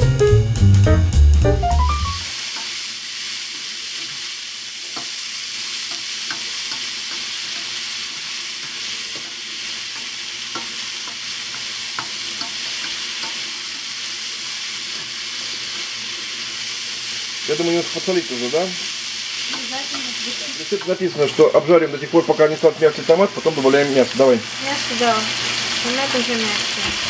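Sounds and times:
background music: 0.0s - 2.3s
vegetables sizzling in a frying pan: 2.0s - 27.0s
spatula scraping and tapping pan: 4.8s - 5.2s, 5.8s - 13.9s, 19.4s - 21.0s.

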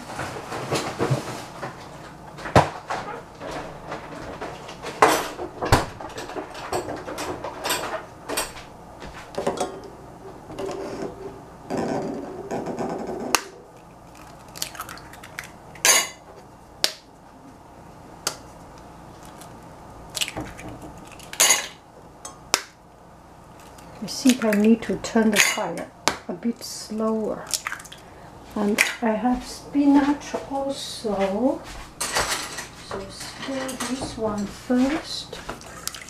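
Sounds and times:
eggs cracked against pan rim: 13.4s - 16.2s, 20.1s - 22.8s.

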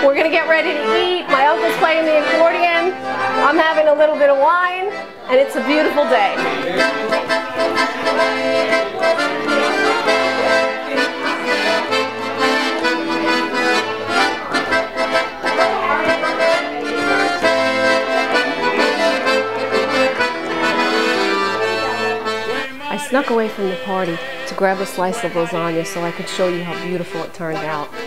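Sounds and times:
accordion playing a tune: 0.0s - 28.0s.

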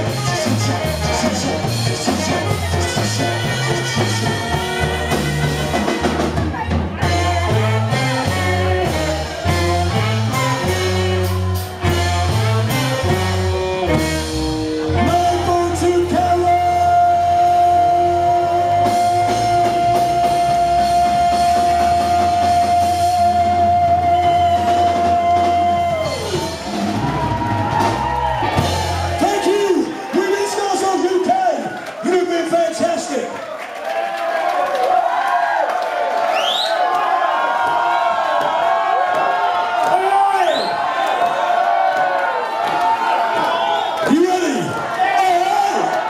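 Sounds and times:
ska band playing live: 0.0s - 31.4s.

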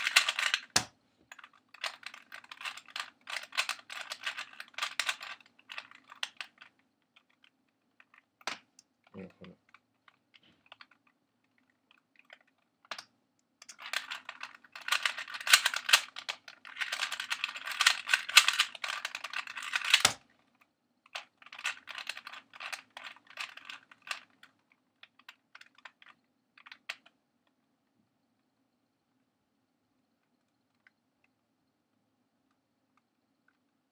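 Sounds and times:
rapid plastic cube clicks: 0.0s - 20.3s, 21.1s - 27.2s.

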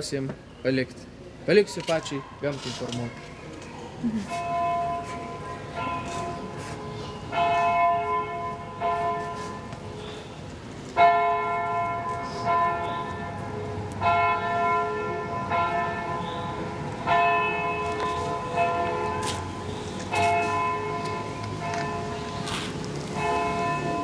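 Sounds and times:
church bell tolling: 4.3s - 10.0s, 11.0s - 22.5s, 23.1s - 24.0s.

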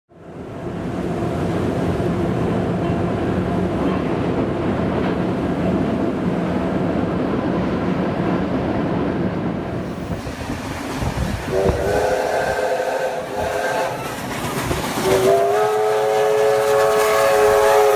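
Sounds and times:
train rumbling across bridge: 0.1s - 17.9s
steam locomotive whistle: 11.4s - 14.3s, 14.9s - 17.9s.

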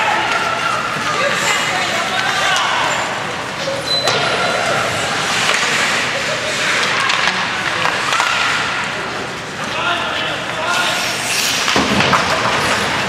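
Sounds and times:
spectators shouting and cheering: 0.0s - 9.1s.

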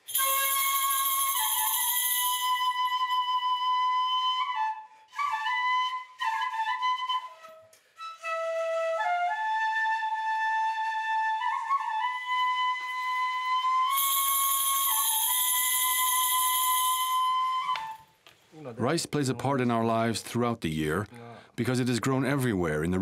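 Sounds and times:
flute melody: 0.0s - 18.2s.

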